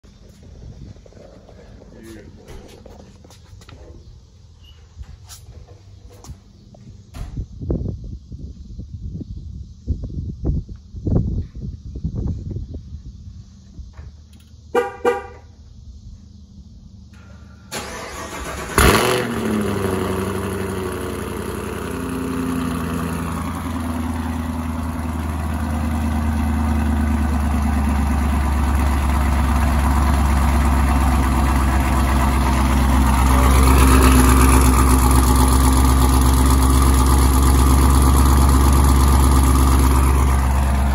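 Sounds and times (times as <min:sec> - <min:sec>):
car engine idling: 0:16.3 - 0:40.9
engine cranking: 0:17.7 - 0:19.7.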